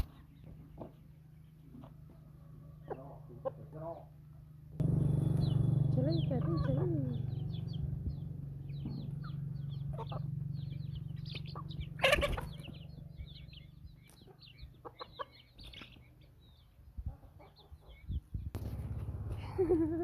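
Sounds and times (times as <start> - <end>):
chicks peeping: 0.0 - 4.1, 4.8 - 18.9
chickens clucking: 0.0 - 4.2, 5.4 - 18.4
steady low hum: 4.7 - 14.1.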